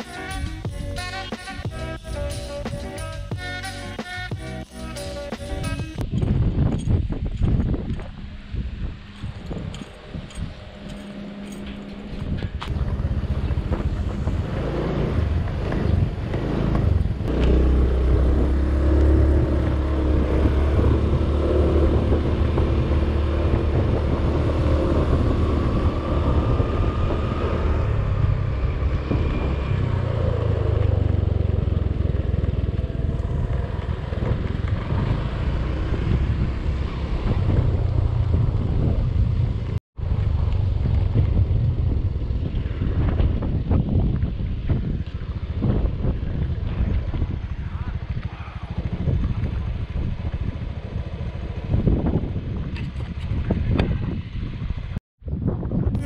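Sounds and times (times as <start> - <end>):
wind rumbling on microphone: 5.6 - 56.0
motor scooter engine running: 12.6 - 43.1.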